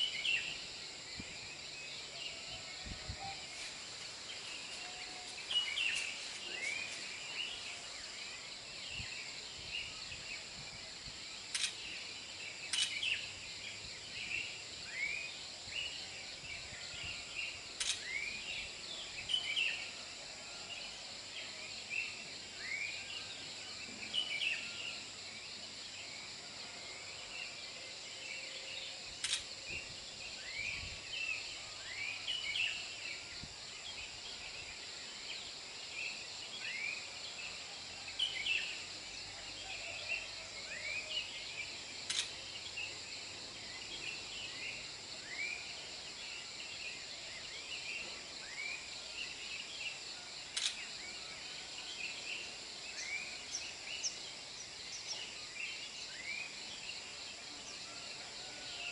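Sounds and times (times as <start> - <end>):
insect chirping calls: 0.0 - 58.9
faint sharp clicks: 11.5 - 11.9, 29.2 - 29.5, 42.1 - 42.4, 50.5 - 50.8.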